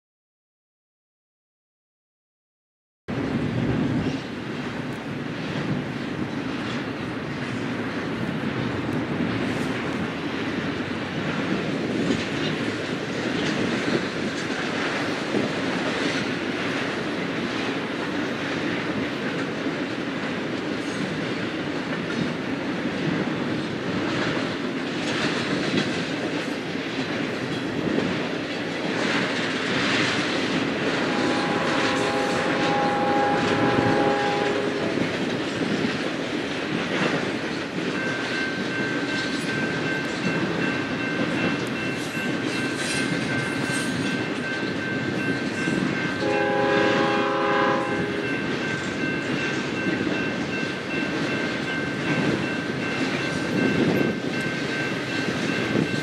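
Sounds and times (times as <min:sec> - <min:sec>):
train rolling rumble and rail noise: 0:03.1 - 0:56.0
locomotive air horn: 0:31.0 - 0:35.0, 0:46.2 - 0:48.3.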